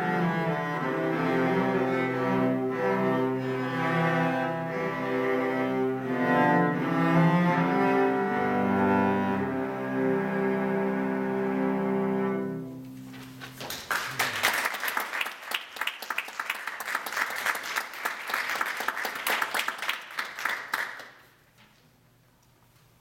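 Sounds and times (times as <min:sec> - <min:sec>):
cellos playing a chord: 0:00.0 - 0:13.0
audience applause: 0:13.2 - 0:21.2.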